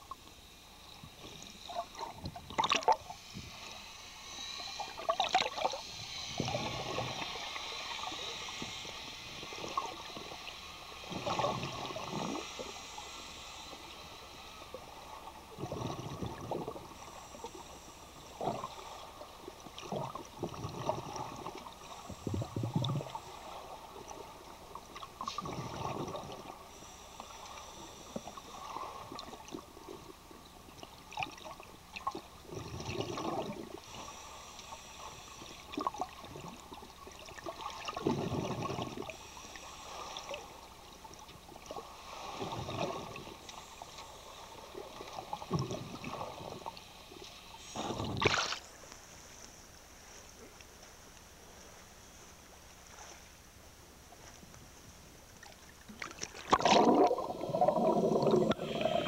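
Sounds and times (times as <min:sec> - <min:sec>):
regulator hiss: 0:00.0 - 0:30.2, 0:33.4 - 0:50.3
gurgling exhaled bubbles: 0:01.7 - 0:03.1, 0:04.9 - 0:05.8, 0:11.1 - 0:12.5, 0:15.5 - 0:16.9, 0:19.8 - 0:23.2, 0:25.2 - 0:26.5, 0:31.1 - 0:33.8, 0:37.2 - 0:39.1, 0:42.4 - 0:43.4, 0:45.0 - 0:46.7, 0:47.8 - 0:48.6, 0:55.9 - 0:59.0.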